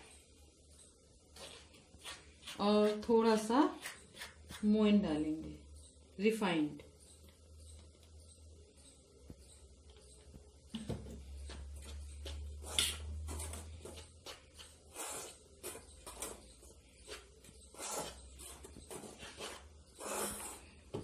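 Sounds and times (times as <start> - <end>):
metal spoon scraping steel bowl: 14.6 - 20.8.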